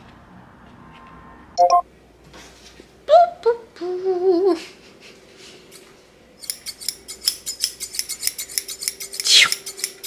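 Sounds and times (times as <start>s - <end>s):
scissors snipping rapidly: 6.5s - 10.0s.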